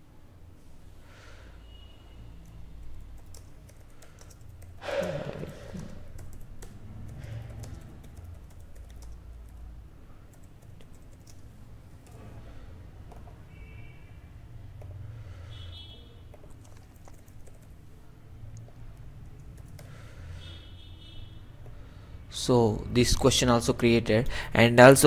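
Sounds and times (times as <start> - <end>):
keyboard keys clicking: 3.0 - 4.8, 5.8 - 9.6, 10.3 - 11.4, 16.3 - 17.7, 18.5 - 19.9.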